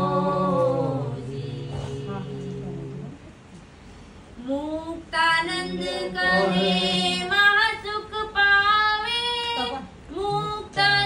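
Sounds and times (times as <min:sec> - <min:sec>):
woman singing: 0:04.4 - 0:11.0.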